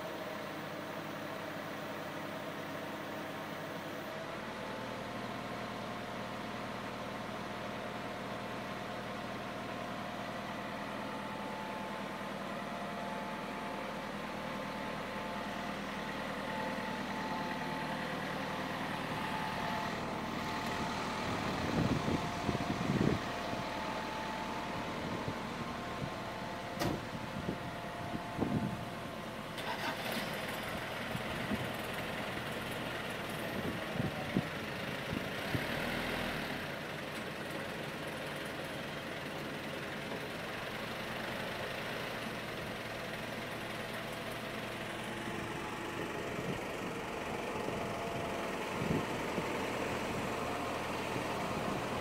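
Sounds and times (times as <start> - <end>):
truck engine running: 0.0 - 52.0.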